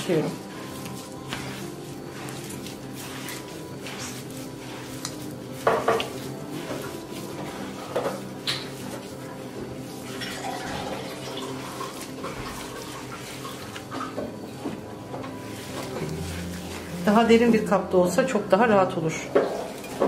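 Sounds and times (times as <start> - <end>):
meat mixture squelching: 0.0 - 18.8, 19.4 - 20.0.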